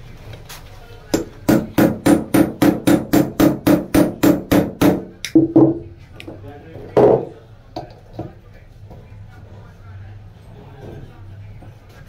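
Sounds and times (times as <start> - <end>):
hammer striking metal: 1.2 - 5.8.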